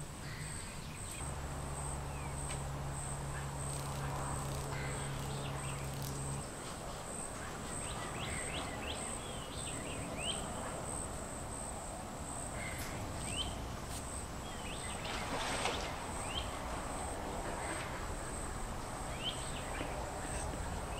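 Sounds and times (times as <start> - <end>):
high insect drone: 0.0 - 20.9.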